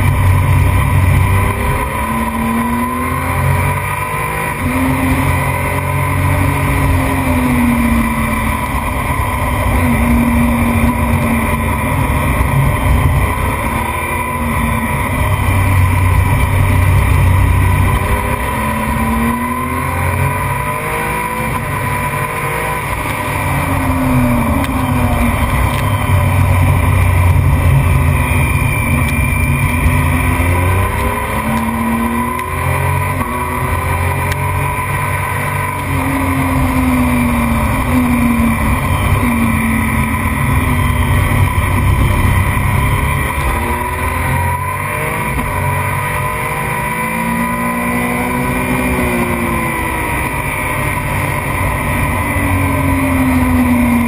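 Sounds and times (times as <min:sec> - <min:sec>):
racing motorcycle engine accelerating: 0:00.0 - 0:54.0.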